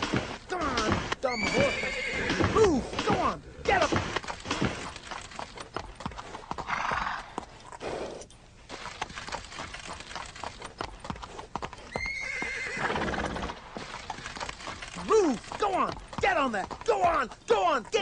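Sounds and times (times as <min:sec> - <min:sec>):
horse hooves on hard floor: 0:13.5 - 0:18.0.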